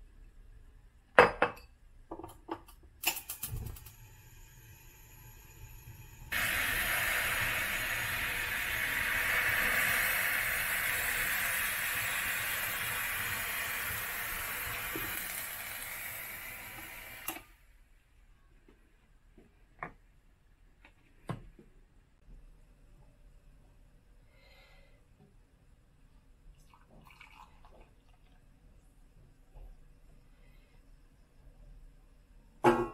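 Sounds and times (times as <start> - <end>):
kitchenware clicks and knocks: 1.2 - 3.8
milk boiling with loud hiss: 3.1 - 17.6.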